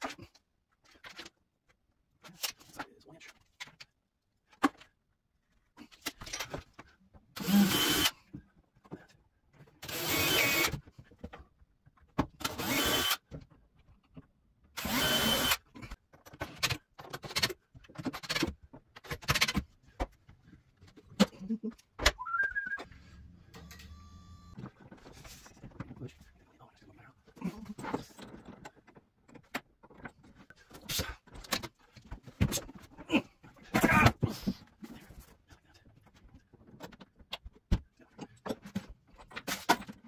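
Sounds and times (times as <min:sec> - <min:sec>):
drill driving screws: 0:07.4 - 0:08.1, 0:09.8 - 0:10.8, 0:12.4 - 0:13.3, 0:14.8 - 0:15.6
drill clicks: 0:09.8 - 0:10.7, 0:12.4 - 0:13.2, 0:14.8 - 0:15.6.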